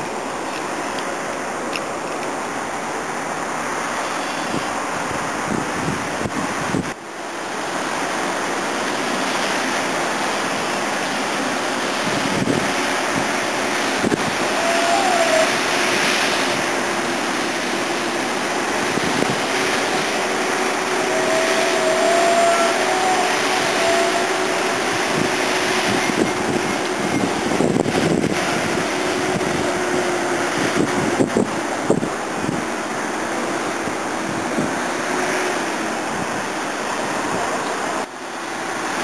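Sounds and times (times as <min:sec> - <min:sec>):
distant road traffic: 0:06.9 - 0:39.0
faint wavering whine: 0:17.8 - 0:28.0.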